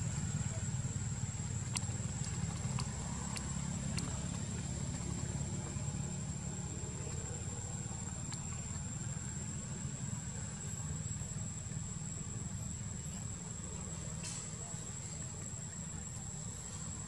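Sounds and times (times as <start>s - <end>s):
faint clicks: 1.6s - 5.3s, 8.0s - 8.9s.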